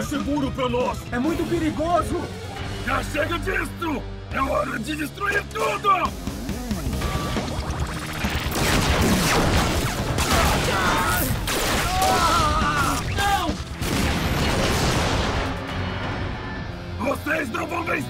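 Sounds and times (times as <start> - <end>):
explosions and blasts: 8.2 - 15.7.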